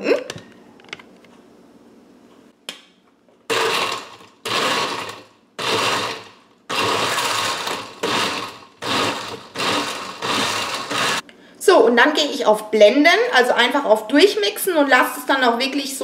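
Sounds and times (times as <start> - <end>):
blender crushing ice: 3.5 - 11.2.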